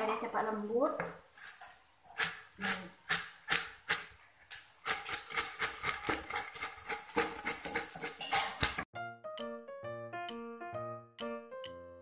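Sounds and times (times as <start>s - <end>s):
wooden pestle pounding in mortar: 2.2s - 4.1s, 4.8s - 8.9s.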